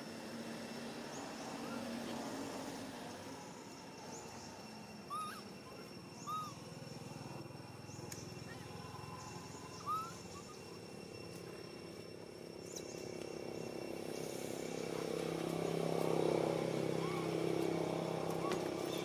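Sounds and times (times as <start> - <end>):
monkey squeaking: 5.1 - 6.7, 9.8 - 11.0.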